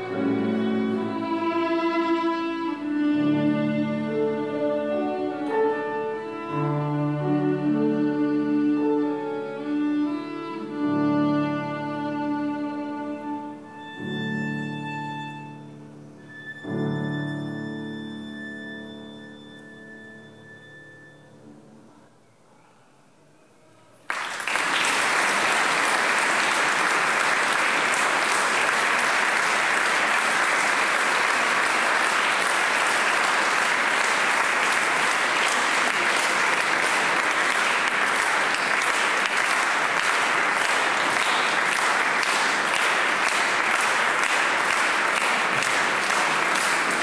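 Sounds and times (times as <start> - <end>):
audience applauding: 24.0 - 47.0.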